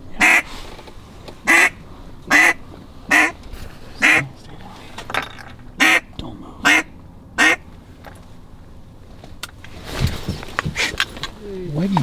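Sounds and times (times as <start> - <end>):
duck call quacks: 0.2 - 0.5, 1.5 - 3.4, 4.0 - 4.2, 5.8 - 6.1, 6.7 - 7.6.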